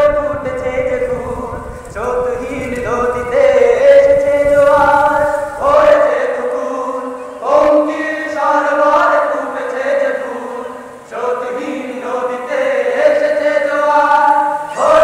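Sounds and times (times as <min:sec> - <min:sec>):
low rumble: 0:00.0 - 0:05.7
person singing long notes: 0:00.0 - 0:15.0.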